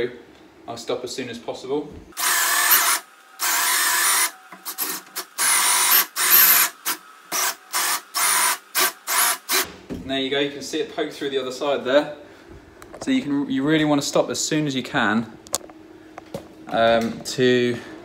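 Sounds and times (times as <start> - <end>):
cordless drill with hole saw: 2.2 - 9.6.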